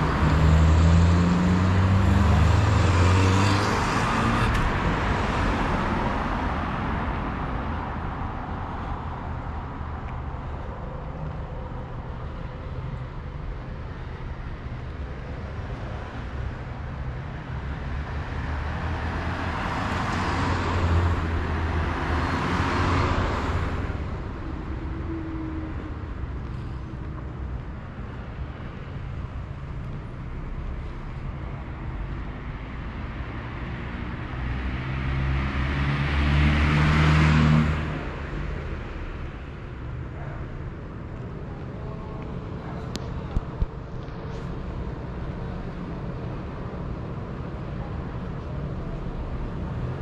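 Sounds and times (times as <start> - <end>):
cars passing: 0.0 - 50.0
low traffic rumble: 0.0 - 50.0.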